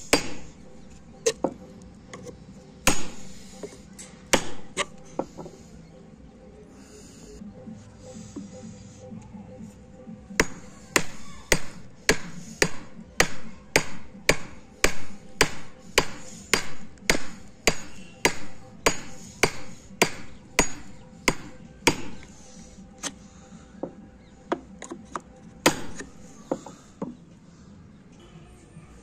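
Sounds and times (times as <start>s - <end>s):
hammer striking chisel: 0.1s - 0.5s, 1.2s - 5.6s, 10.3s - 22.3s, 23.9s - 27.2s.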